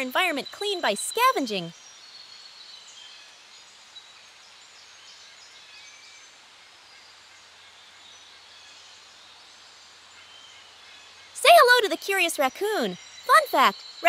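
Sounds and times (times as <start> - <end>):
soft hiss: 0.0 - 14.0
high bird chirps: 11.4 - 14.0.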